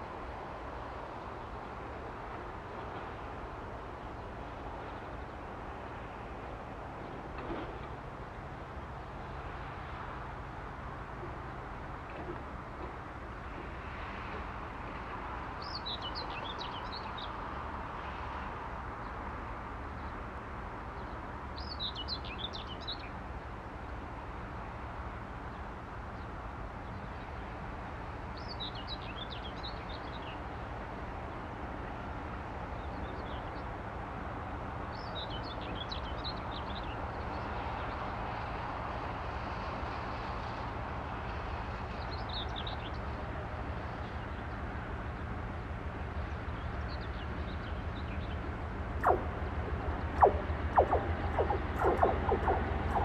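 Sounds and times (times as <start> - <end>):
songbird twittering: 49.0 - 53.0.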